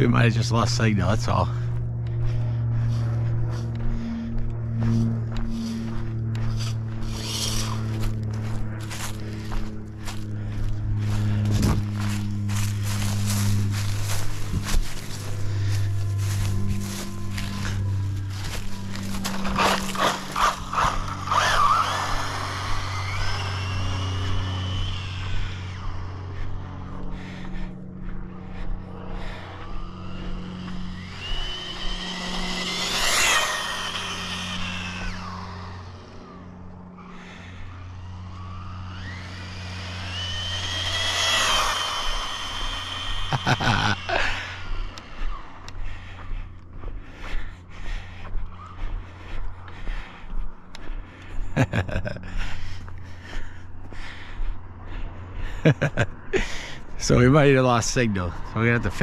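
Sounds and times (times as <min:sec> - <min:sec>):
steady low hum: 0:00.0 - 0:59.0
toy car electric motor whining: 0:06.3 - 0:10.2, 0:11.0 - 0:27.6, 0:29.1 - 0:46.1.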